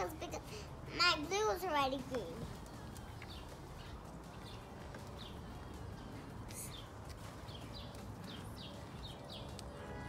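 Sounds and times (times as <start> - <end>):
bird chirping: 2.7 - 9.8.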